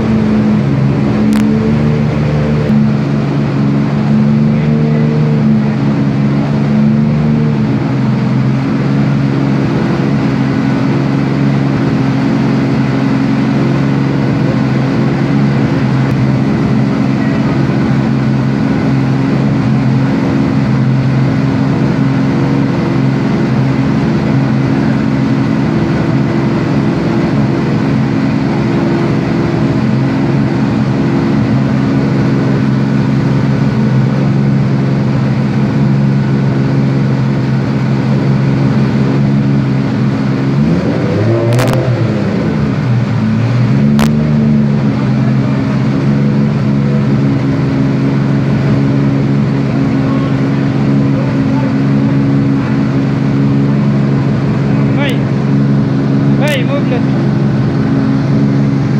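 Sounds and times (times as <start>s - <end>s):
car engine under load: 0.0s - 58.9s.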